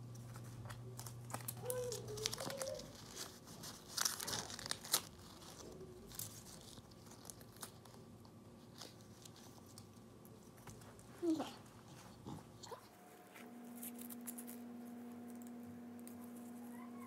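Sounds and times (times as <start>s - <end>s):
material rustling and crinkling: 0.0s - 14.6s.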